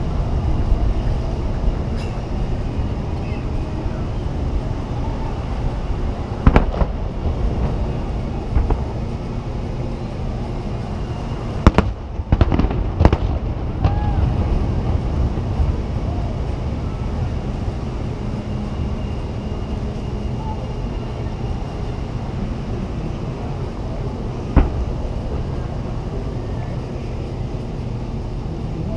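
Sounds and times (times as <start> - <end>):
steady background noise: 0.0 - 28.9
fireworks bursting: 0.6 - 16.4, 24.5 - 25.7.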